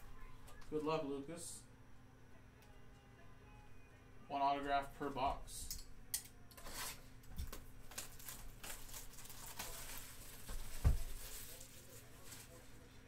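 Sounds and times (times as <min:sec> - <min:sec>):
shrink wrap tearing and crinkling: 0:06.6 - 0:12.7.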